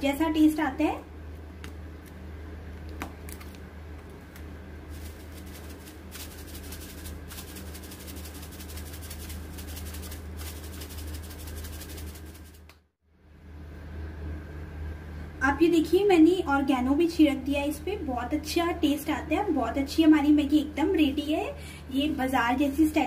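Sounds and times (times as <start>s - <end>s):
dried herbs crackling rustle: 4.2s - 12.6s.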